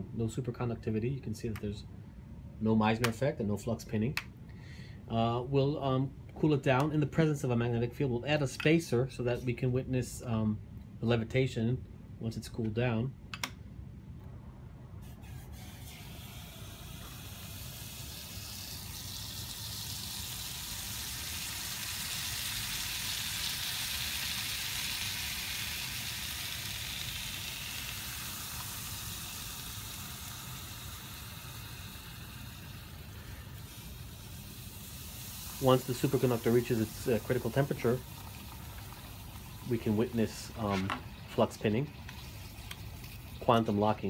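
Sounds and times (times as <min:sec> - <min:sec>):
liquid nitrogen boiling hiss: 0:15.2 - 0:44.0.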